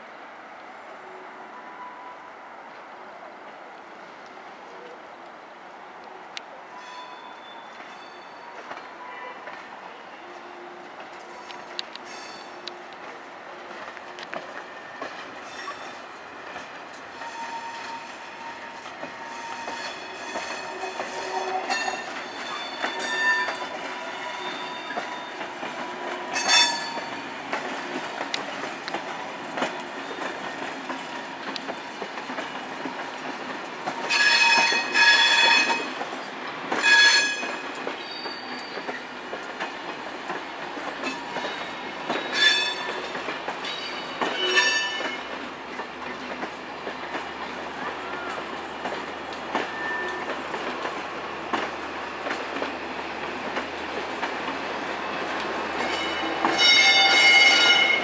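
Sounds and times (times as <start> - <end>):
train wheels squealing: 6.7 - 9.3, 10.2 - 12.6, 14.6 - 16.1, 17.1 - 25.6, 34.0 - 36.1, 36.8 - 39.1, 41.0 - 45.4, 49.5 - 50.4, 55.8 - 58.0
train wheels clicking over rail joints: 11.0 - 58.0.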